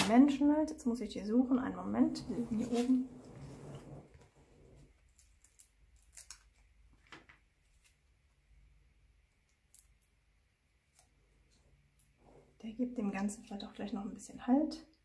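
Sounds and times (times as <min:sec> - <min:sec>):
paper rustling and clicks: 0:05.0 - 0:08.0.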